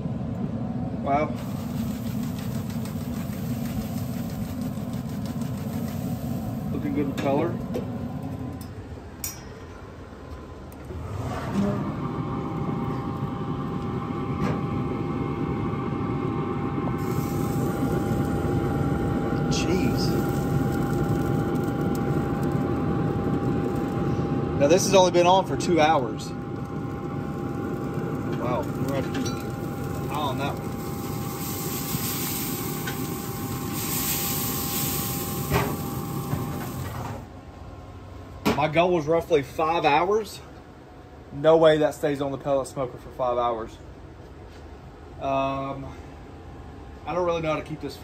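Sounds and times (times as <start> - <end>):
grill fan whirring: 0.0 - 48.0
faint whine: 11.6 - 40.2.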